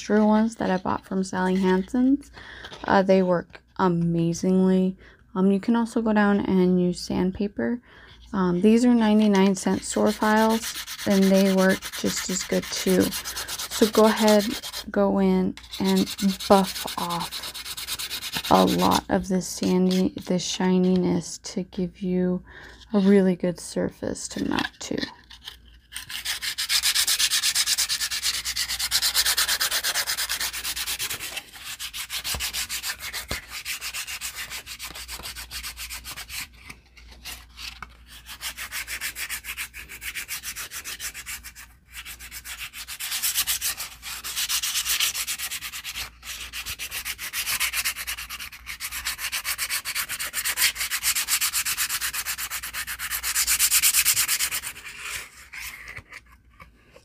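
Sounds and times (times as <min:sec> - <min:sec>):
nail file scratching card: 0:10.0 - 0:14.8, 0:15.6 - 0:19.0, 0:25.3 - 0:36.5, 0:37.3 - 0:56.1.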